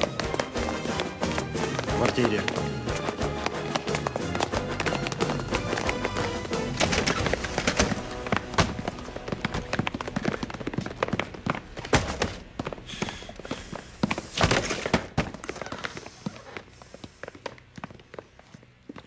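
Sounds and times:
boot footsteps on hard floor: 0:00.0 - 0:14.3.

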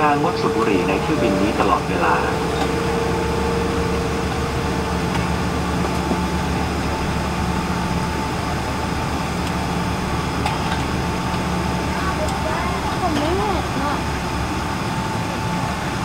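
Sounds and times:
airliner cabin rumble and hiss: 0:00.0 - 0:16.0
engine high whine: 0:00.0 - 0:16.0
low hum: 0:00.6 - 0:08.5.

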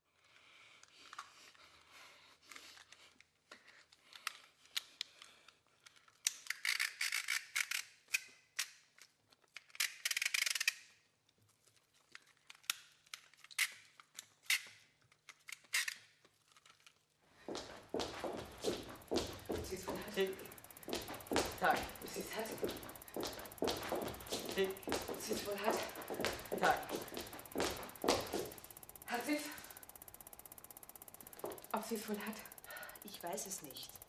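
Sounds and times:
faint low hum: 0:17.4 - 0:34.0.

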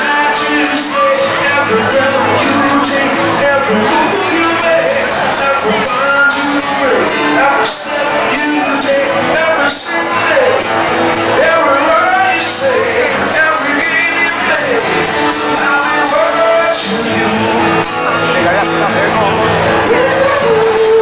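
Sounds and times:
acoustic guitar: 0:00.0 - 0:21.0
man singing into a microphone: 0:00.0 - 0:21.0.

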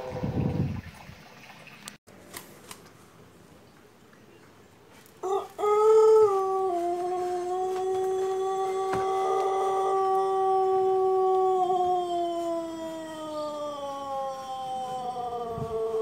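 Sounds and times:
rooster crowing: 0:05.2 - 0:16.0.

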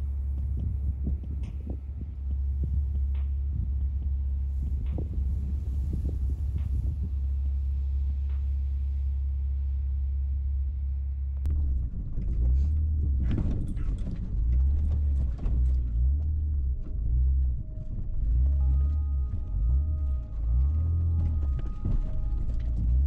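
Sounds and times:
wind buffeting microphone: 0:00.0 - 0:08.6, 0:11.5 - 0:23.0
truck driving on rough trail: 0:00.0 - 0:23.0
knocks and rattles: 0:11.5 - 0:23.0.

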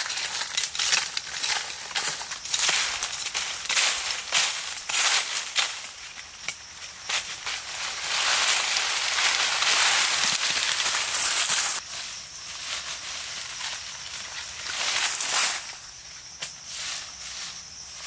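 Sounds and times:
twigs snapping: 0:00.0 - 0:11.8
branches and undergrowth rustling: 0:00.0 - 0:18.0
footsteps on dry leaves: 0:00.0 - 0:18.0.

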